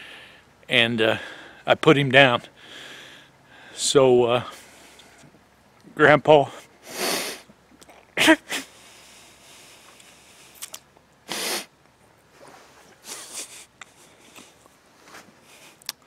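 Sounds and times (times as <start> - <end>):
sniffing and shaky breaths: 2.5 - 3.8, 8.5 - 10.7, 12.4 - 16.0
man sobbing: 8.2 - 8.7, 13.0 - 14.2.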